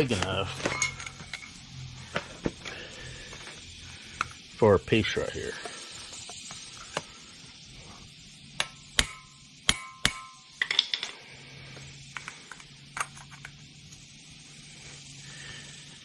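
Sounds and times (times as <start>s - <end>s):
metal tools clinking on concrete: 0.0s - 1.6s, 8.6s - 11.2s, 12.1s - 13.6s
rattle of small clicks: 12.1s - 14.1s.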